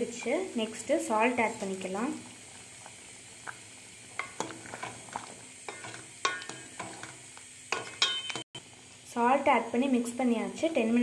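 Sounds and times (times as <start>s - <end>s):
gravy simmering hiss: 0.0s - 11.0s
spoon scraping a pan: 2.8s - 8.5s.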